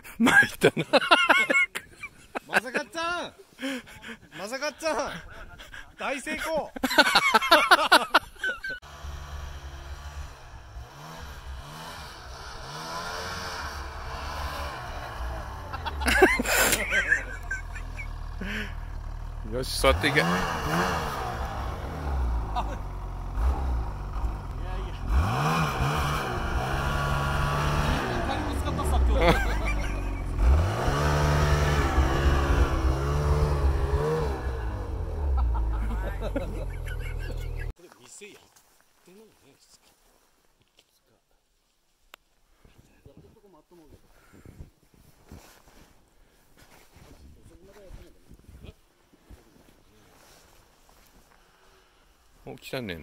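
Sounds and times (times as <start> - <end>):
snowmobile engine revving: 6.8 - 37.7.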